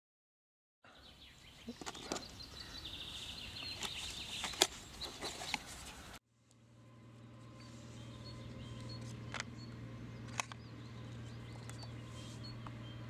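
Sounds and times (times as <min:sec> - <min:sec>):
faint bird chirps: 0:00.9 - 0:06.2
low hum: 0:05.9 - 0:13.0.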